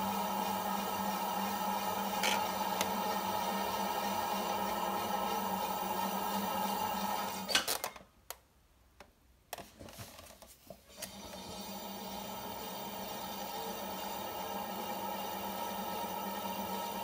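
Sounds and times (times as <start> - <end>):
potter's wheel motor humming: 0.0 - 7.5.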